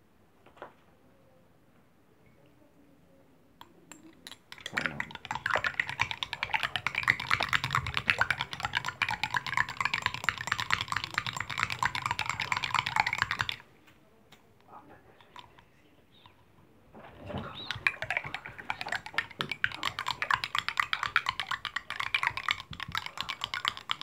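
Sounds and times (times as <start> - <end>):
teaspoon clinking against glass: 3.6 - 13.6, 17.6 - 24.0.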